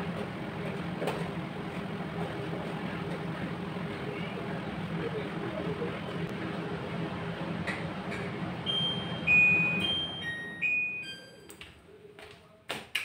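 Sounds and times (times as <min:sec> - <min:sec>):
steady hum: 0:00.0 - 0:11.0
bell-like electronic melody: 0:08.7 - 0:11.5.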